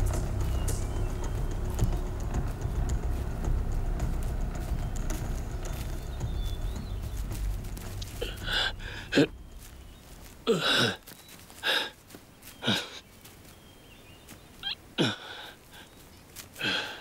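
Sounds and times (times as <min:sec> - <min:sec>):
man groaning in pain: 0:10.4 - 0:11.0.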